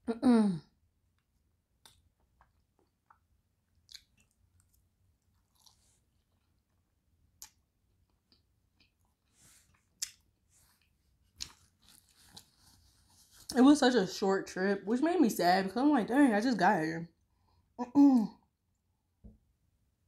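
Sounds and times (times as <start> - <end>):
person chewing meat: 1.8 - 12.8.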